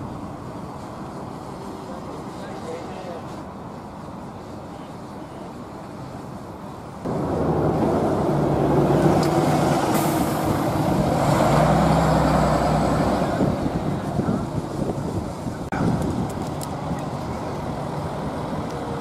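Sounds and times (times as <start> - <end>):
bus engine passing: 0.0 - 19.0
air brake hiss: 9.9 - 10.6.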